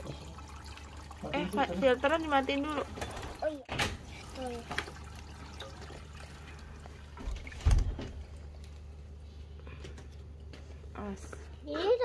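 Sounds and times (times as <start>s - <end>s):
aquarium filter water bubbling: 0.0s - 9.2s.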